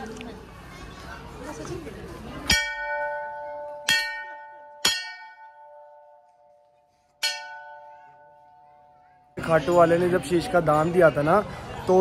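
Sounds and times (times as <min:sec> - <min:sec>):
brass bell ringing: 0:07.2 - 0:08.7.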